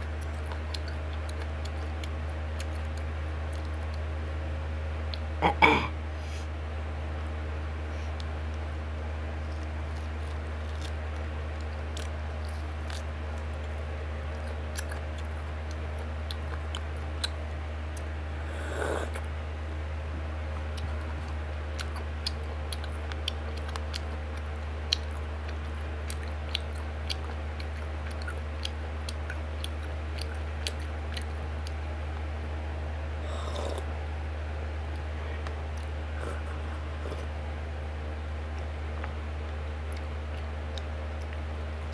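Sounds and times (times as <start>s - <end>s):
steady low hum: 0.0s - 41.9s
mouth smacks of chewing: 0.1s - 4.0s, 9.5s - 19.2s, 20.7s - 31.8s
sip from a bowl: 18.5s - 19.2s, 33.2s - 33.9s.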